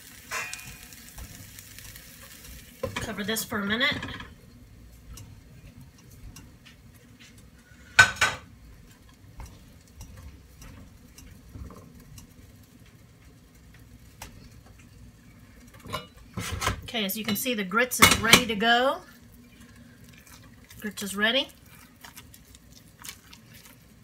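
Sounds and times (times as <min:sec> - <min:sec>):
pots and pans clattering: 0:00.2 - 0:01.2, 0:03.9 - 0:04.4, 0:07.9 - 0:08.5, 0:15.7 - 0:16.9.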